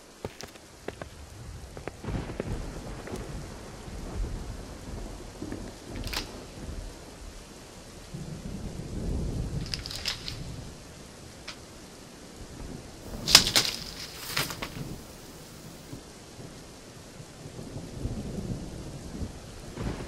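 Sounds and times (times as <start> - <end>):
rain falling: 0.0 - 20.0
thunder rolling: 1.0 - 10.9, 12.6 - 16.0, 17.7 - 20.0.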